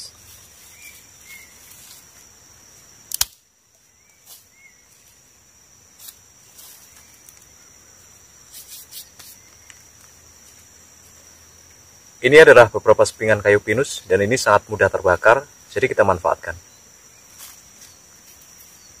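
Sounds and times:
insects buzzing: 0:00.0 - 0:19.0
dry twigs snapping: 0:03.1 - 0:03.4.

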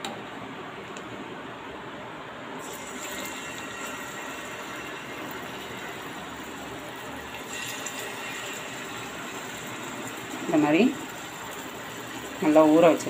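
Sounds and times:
fish sizzling in hot oil: 0:02.6 - 0:13.0.

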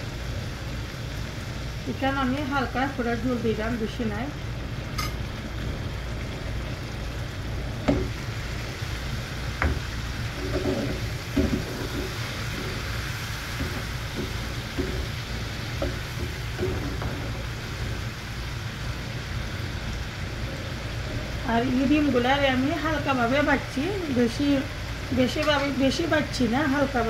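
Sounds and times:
gravy sizzling in a pan: 0:00.0 - 0:27.0
spoon stirring and knocking pan: 0:09.6 - 0:17.5, 0:25.4 - 0:25.8.

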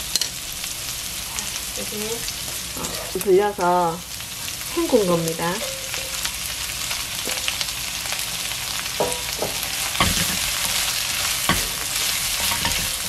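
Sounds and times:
vegetables sizzling in oil: 0:00.0 - 0:13.0
wooden spatula knocking pan: 0:09.0 - 0:13.0.

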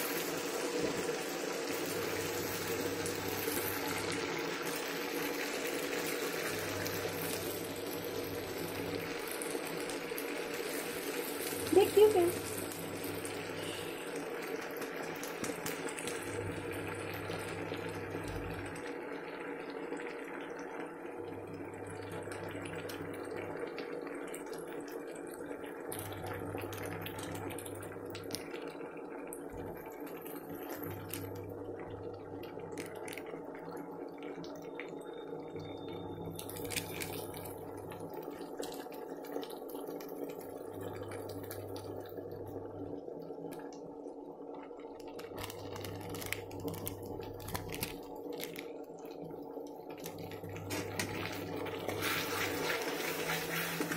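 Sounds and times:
spices sizzling in hot oil: 0:00.0 - 0:28.7, 0:29.5 - 0:42.0, 0:45.0 - 0:53.9
metal spatula scraping: 0:51.9 - 0:53.9.

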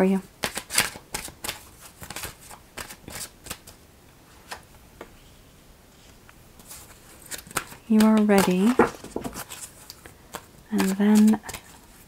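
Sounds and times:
cards being shuffled: 0:00.4 - 0:03.8, 0:06.6 - 0:12.0.

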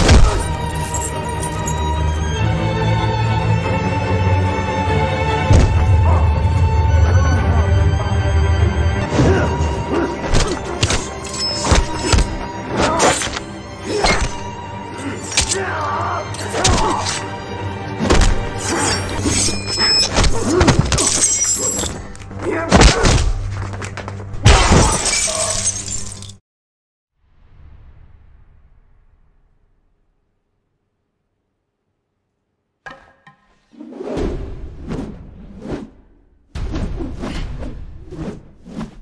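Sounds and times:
punch and kick impacts: 0:00.0 - 0:00.6, 0:05.5 - 0:06.0, 0:22.7 - 0:23.4
soundtrack music: 0:00.0 - 0:20.1
glass shattering: 0:21.0 - 0:22.0, 0:24.6 - 0:26.4
grunts and groans: 0:22.4 - 0:23.2.

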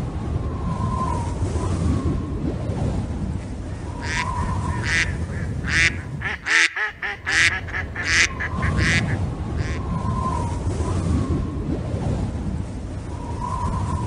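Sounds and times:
ducks quacking: 0:03.8 - 0:09.9.

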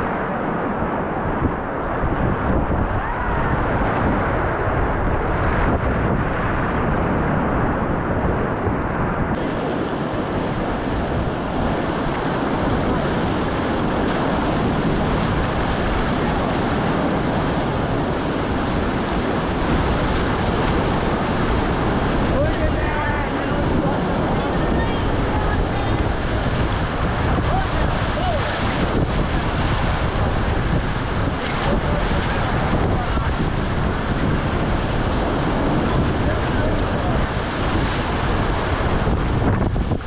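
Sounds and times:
whitewater rapids rushing: 0:09.4 - 0:40.0.

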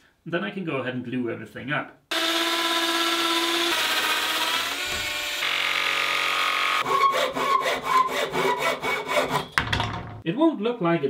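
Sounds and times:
handsaw cutting plywood: 0:02.1 - 0:09.5.

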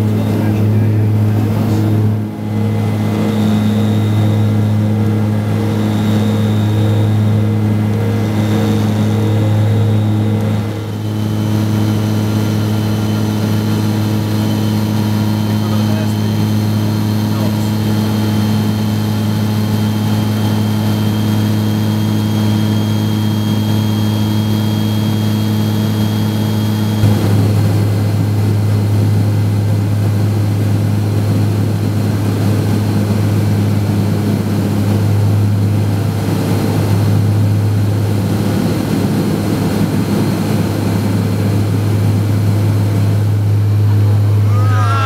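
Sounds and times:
turboprop engine drone in cabin: 0:00.0 - 0:45.0
rough rushing noise: 0:27.0 - 0:28.6.

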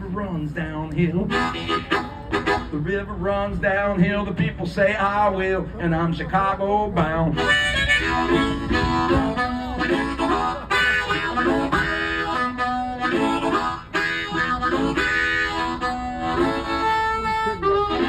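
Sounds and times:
blues harmonica: 0:00.7 - 0:04.1, 0:07.0 - 0:18.0.

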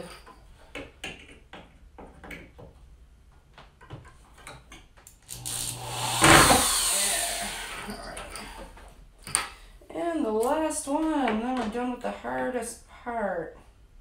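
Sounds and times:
cordless drill into wood: 0:05.3 - 0:08.6.

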